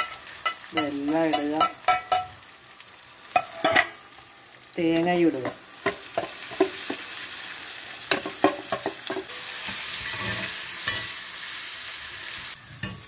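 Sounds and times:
metal clinking against pan: 0.0s - 2.4s, 10.8s - 11.1s
spices sizzling in pan: 0.0s - 13.0s.

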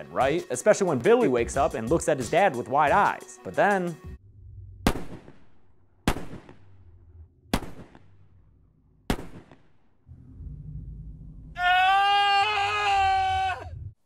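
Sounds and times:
low rumble: 4.2s - 11.6s, 13.6s - 14.0s
handgun shots: 4.9s - 5.4s, 6.1s - 6.7s, 7.5s - 8.1s, 9.1s - 9.7s.

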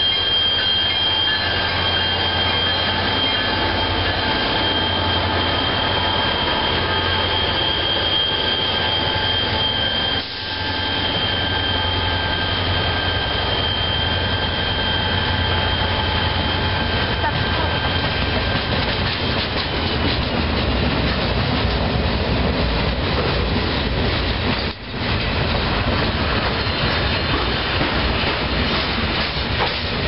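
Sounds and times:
high wheel squeal: 0.0s - 19.8s
train cars rolling past: 0.0s - 30.0s.

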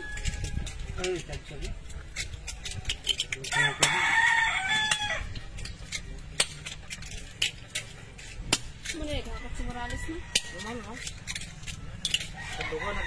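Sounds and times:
rooster crowing: 3.5s - 5.4s, 12.2s - 13.0s.

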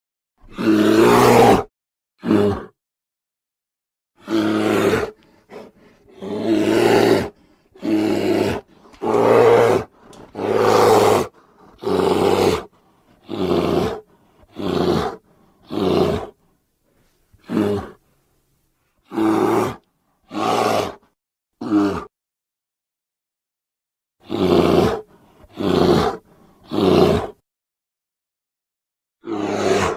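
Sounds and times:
deep animal roars: 4.2s - 16.3s, 24.2s - 27.4s, 29.2s - 29.9s.

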